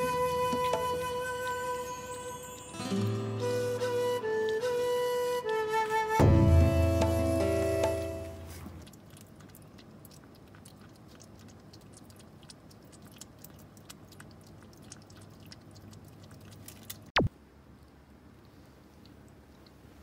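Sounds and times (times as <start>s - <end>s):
kitten chewing food: 8.5s - 20.0s.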